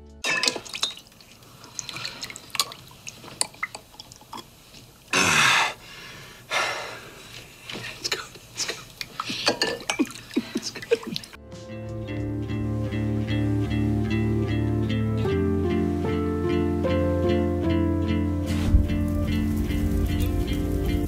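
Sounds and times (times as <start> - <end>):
loud falling hiss: 18.5 - 21.0.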